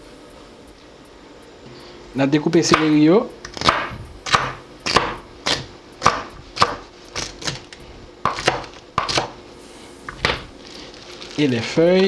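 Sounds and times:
knife chopping on wooden board: 2.7s - 7.6s, 8.2s - 9.4s.

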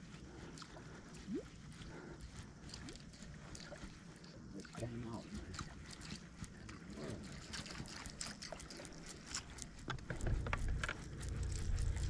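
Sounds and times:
low steady hum: 0.0s - 12.0s
water splashing and trickling: 0.0s - 12.0s.

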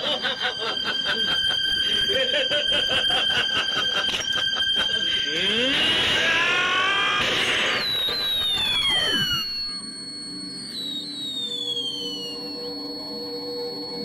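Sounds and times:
falling whistles: 4.3s - 14.0s.

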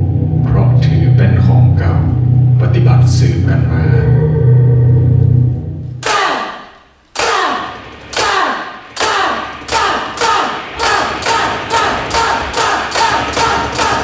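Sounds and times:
low sustained bass note: 0.0s - 6.0s
heavy echoing percussive beats: 5.8s - 14.0s.

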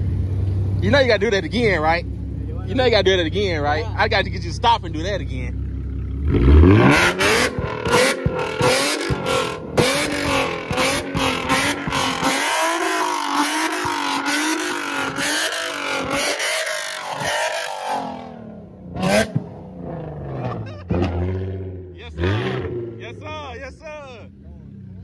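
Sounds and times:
exhaust backfire pops: 6.1s - 12.5s, 18.9s - 21.8s
car engine revving hard: 6.2s - 23.5s.

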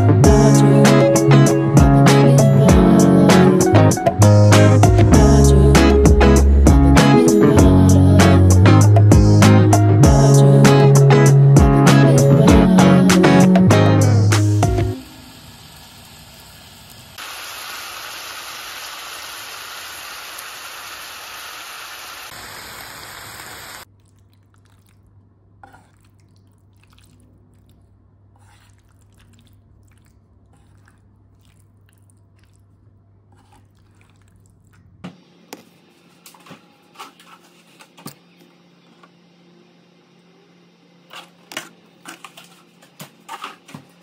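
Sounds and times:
water boiling in a pot: 15.0s - 23.9s.

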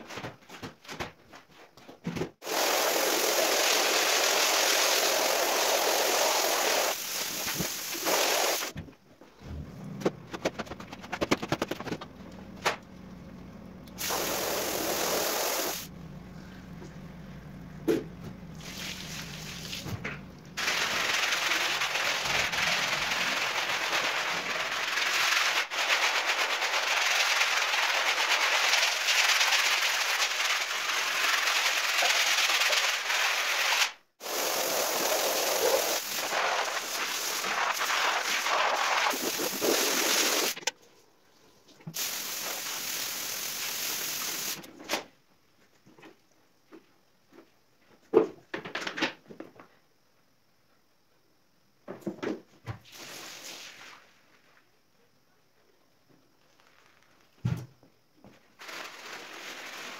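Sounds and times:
scrub brush scratching rug: 20.6s - 40.6s.

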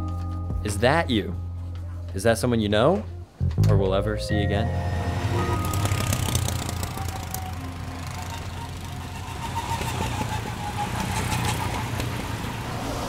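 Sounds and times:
go-kart engine drone: 4.7s - 13.0s.

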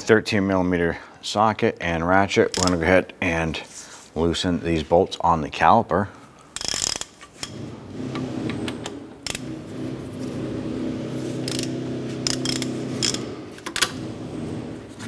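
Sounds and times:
ratchet clicking: 2.5s - 2.8s, 6.6s - 7.6s, 11.4s - 14.0s.

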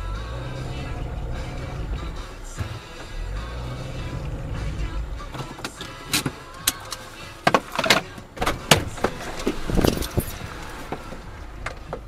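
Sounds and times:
clicks and knocks in car cabin: 5.3s - 12.0s
rattling clatter: 5.3s - 12.0s.

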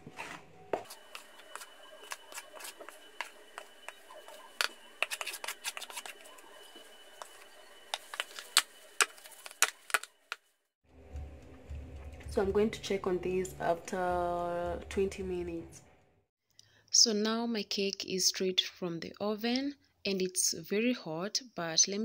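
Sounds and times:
spatula scraping plastic bowl: 0.2s - 10.0s.

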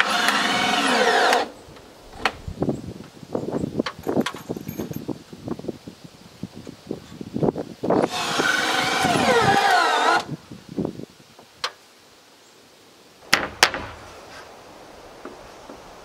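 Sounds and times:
power drill whining into wood: 0.0s - 1.5s, 8.0s - 10.3s.

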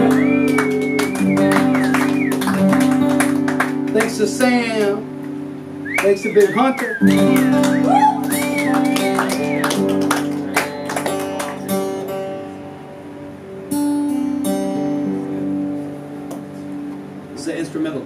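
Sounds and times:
wavering whistle-like tone: 0.0s - 2.5s, 5.8s - 9.8s
acoustic guitar picked and strummed: 0.0s - 17.7s.

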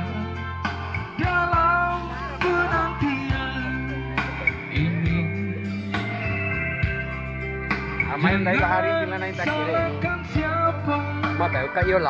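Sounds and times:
person singing: 0.0s - 6.4s, 8.1s - 11.5s
guitar accompaniment: 0.0s - 12.0s.

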